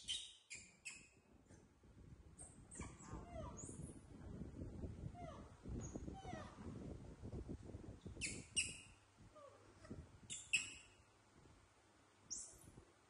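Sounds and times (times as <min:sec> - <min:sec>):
baby monkeys squeaky calls: 0:08.2 - 0:08.9, 0:10.3 - 0:10.9.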